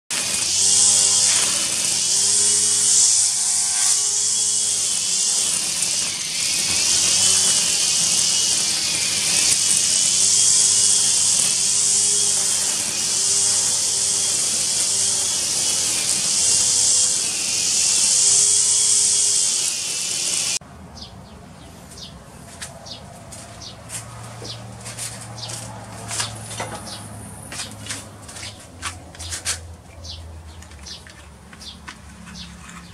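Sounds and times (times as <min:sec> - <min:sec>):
grass trimmer whining: 0:00.1 - 0:20.6.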